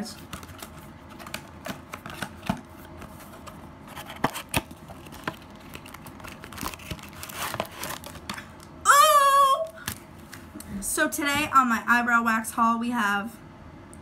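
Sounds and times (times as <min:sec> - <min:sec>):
paper crinkling and rustling: 0:00.0 - 0:08.5.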